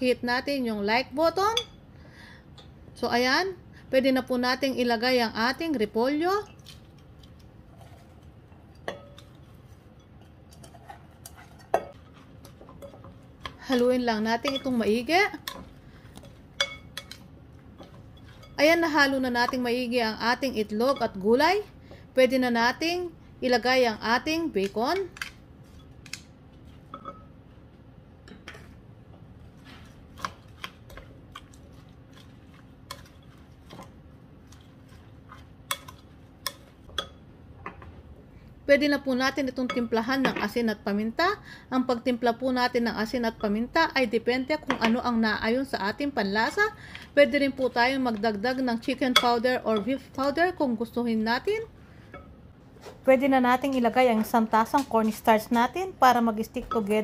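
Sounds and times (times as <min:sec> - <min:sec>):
spatula stirring food in bowl: 0:06.4 - 0:21.3, 0:28.4 - 0:37.3.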